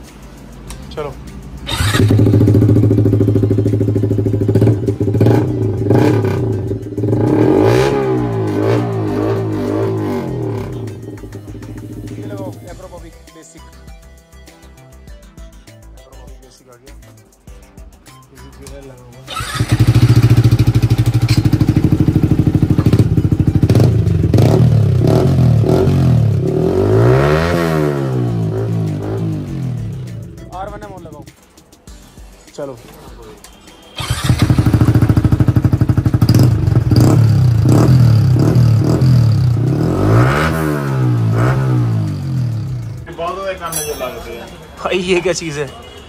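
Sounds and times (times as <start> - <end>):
motorcycle engine idling and revving: 0.0 - 12.9, 19.3 - 31.2, 34.0 - 43.1.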